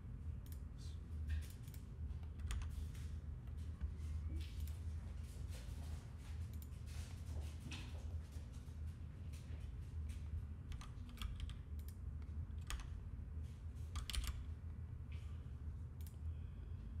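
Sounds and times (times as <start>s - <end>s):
steady low hum: 0.0s - 17.0s
keyboard keys clicking: 1.5s - 2.7s, 10.7s - 12.0s, 12.6s - 12.9s, 13.9s - 14.4s.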